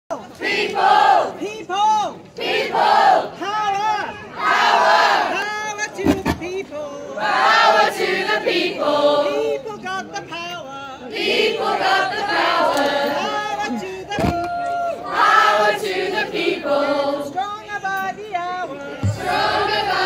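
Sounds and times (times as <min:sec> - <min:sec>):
crowd singing together: 0:00.1 - 0:01.4, 0:02.4 - 0:03.4, 0:04.4 - 0:05.4, 0:07.2 - 0:09.6, 0:11.1 - 0:13.7, 0:15.0 - 0:17.5, 0:18.7 - 0:20.0
low thump on microphone: 0:19.0 - 0:20.0.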